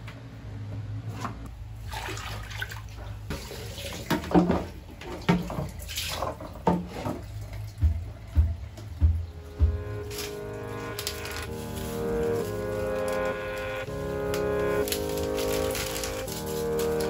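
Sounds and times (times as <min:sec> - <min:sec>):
laundry sloshing in water: 0:01.7 - 0:08.7.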